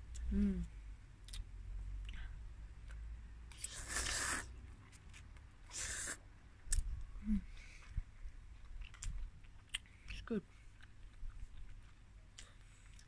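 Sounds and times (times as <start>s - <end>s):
person slurping noodles: 3.6s - 4.5s, 5.7s - 6.2s.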